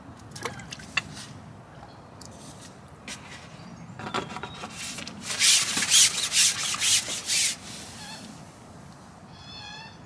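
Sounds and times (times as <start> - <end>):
fishing pole rubbing through hands: 4.7 - 8.3.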